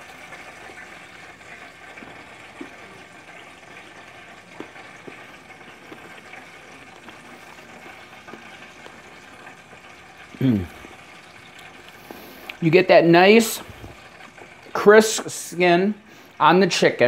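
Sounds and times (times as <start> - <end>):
crunches of fried chicken eaten: 0.2 - 12.6.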